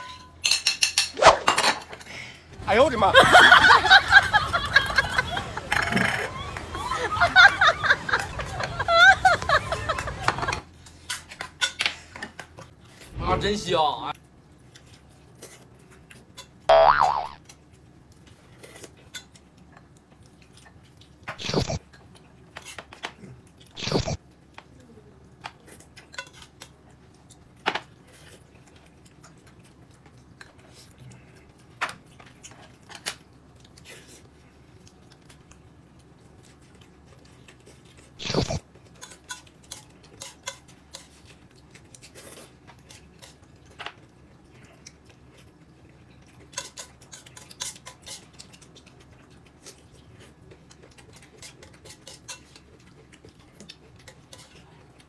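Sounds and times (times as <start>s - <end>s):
cutlery clinking against dishes: 0.0s - 2.0s.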